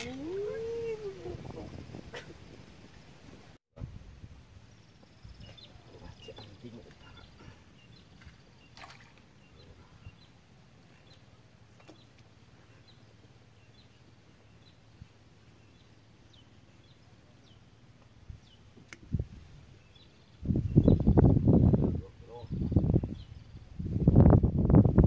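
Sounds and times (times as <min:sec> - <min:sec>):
small birds chirping: 0:04.6 - 0:23.8.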